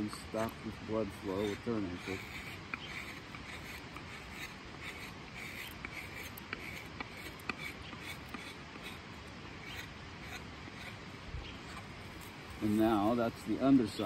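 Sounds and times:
knife shaving wood: 0:00.4 - 0:09.0.

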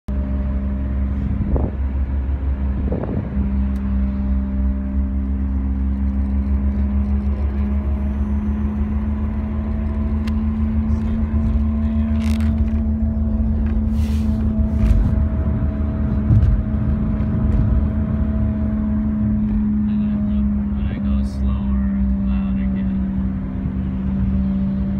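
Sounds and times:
road and engine noise: 0:00.1 - 0:24.9
wheel bearing drone: 0:00.1 - 0:24.9.

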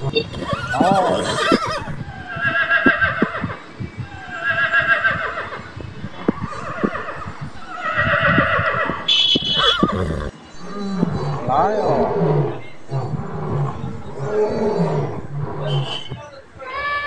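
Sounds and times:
high horse squeal: 0:00.0 - 0:03.6, 0:04.3 - 0:10.4
horses whinnying: 0:00.0 - 0:03.6, 0:04.2 - 0:17.0.

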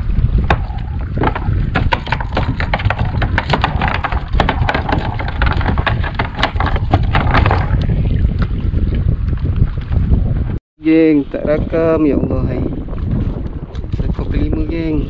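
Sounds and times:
water slapping against kayak hull: 0:00.0 - 0:10.6
wind buffeting microphone: 0:00.0 - 0:15.0.

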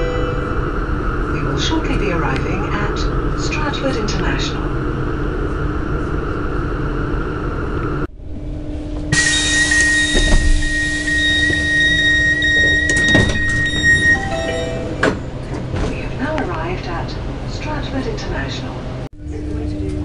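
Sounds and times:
train running noise: 0:00.0 - 0:20.0
train door clunk: 0:09.0 - 0:16.1
high electronic door tone: 0:09.1 - 0:15.2.

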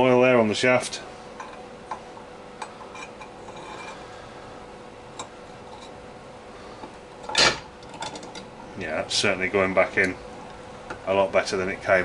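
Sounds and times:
metal shaft clicking and scraping: 0:02.6 - 0:04.0.

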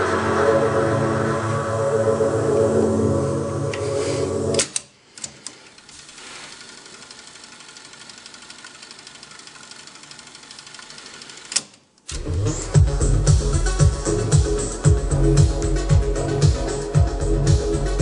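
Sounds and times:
tape winding whirr: 0:04.6 - 0:12.5
music from cassette deck: 0:12.1 - 0:18.0.

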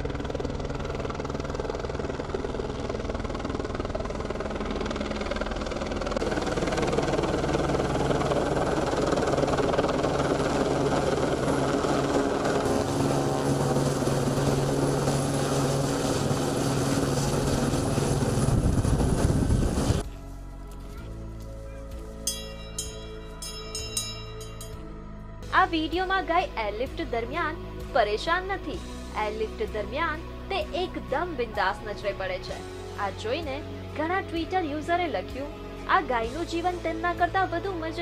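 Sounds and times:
helicopter rotor and engine: 0:00.0 - 0:20.1.

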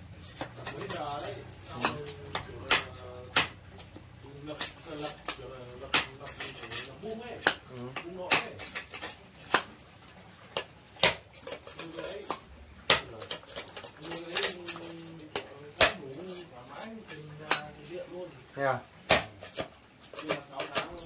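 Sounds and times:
machete chopping bamboo: 0:01.7 - 0:03.9, 0:05.2 - 0:06.2, 0:07.4 - 0:09.8, 0:10.6 - 0:11.6, 0:12.2 - 0:14.6, 0:15.8 - 0:16.1, 0:19.0 - 0:21.0.

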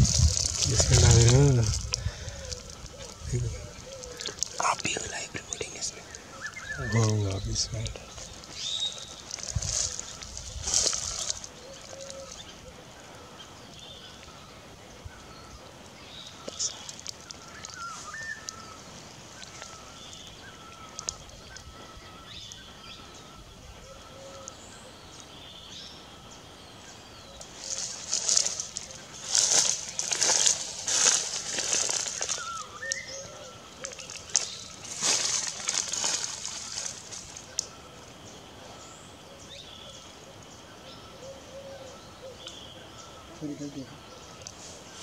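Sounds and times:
rustling: 0:00.0 - 0:12.6, 0:27.4 - 0:37.7
birds chirping: 0:00.0 - 0:45.0.

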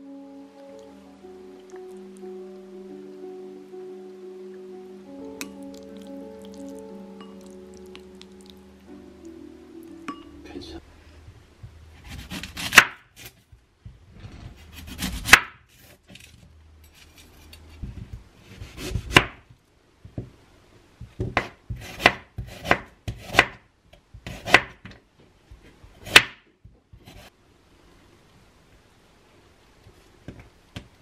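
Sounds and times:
knife slicing onion: 0:11.9 - 0:13.4, 0:14.6 - 0:16.0, 0:21.2 - 0:23.6, 0:24.2 - 0:24.8.

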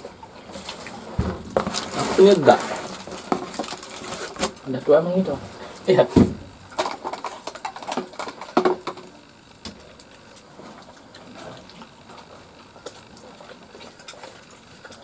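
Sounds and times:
people chewing and lip-smacking: 0:06.9 - 0:15.0.

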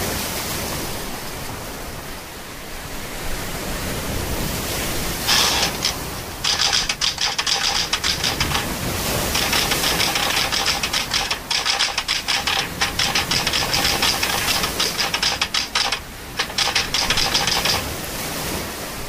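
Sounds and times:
typewriter keys clattering: 0:05.3 - 0:17.9.

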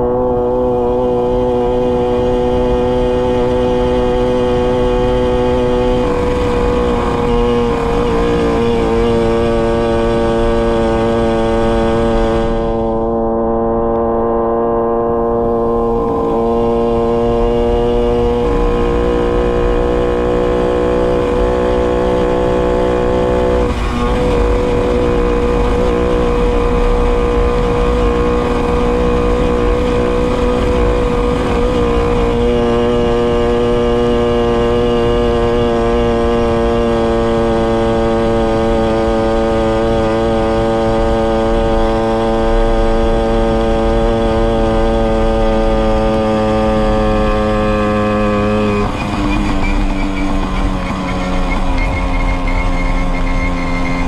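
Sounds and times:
moped engine cruising: 0:00.0 - 0:54.0.

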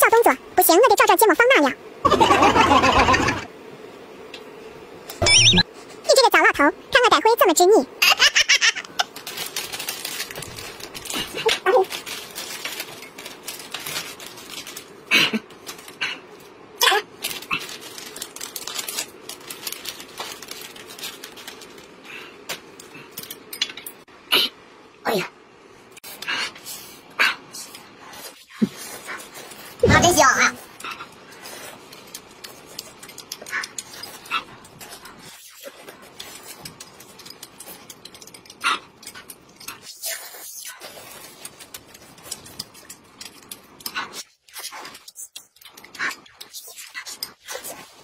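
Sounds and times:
people slurping noodles: 0:02.1 - 0:03.5
plastic packaging crinkling: 0:09.0 - 0:16.0, 0:17.1 - 0:22.0, 0:31.5 - 0:39.7, 0:40.8 - 0:44.2
chewing: 0:30.7 - 0:48.0.

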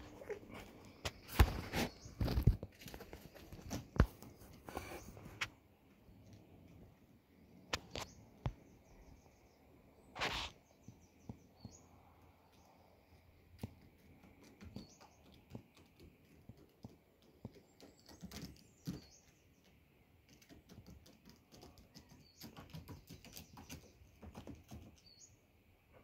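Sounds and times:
taps and scrapes on a roof: 0:00.1 - 0:05.6, 0:10.2 - 0:11.8, 0:13.6 - 0:25.2.

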